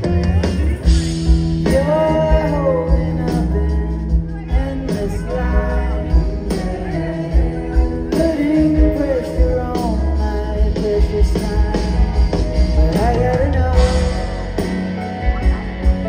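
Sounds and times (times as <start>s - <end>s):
live rock band playing: 0.0s - 16.0s
person singing: 0.0s - 16.0s.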